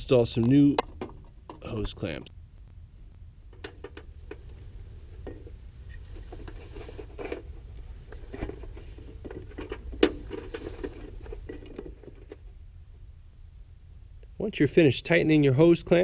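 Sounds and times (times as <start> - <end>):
steady low hum: 0.0 - 16.0
metal clicks and scrapes: 5.2 - 12.4.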